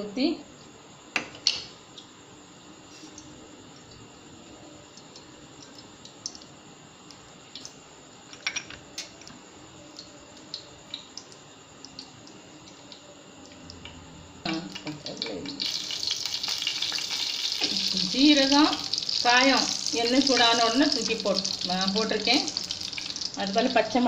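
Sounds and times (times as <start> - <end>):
spices sizzling in hot oil: 8.9 - 24.0
oil popping and crackling: 9.9 - 24.0.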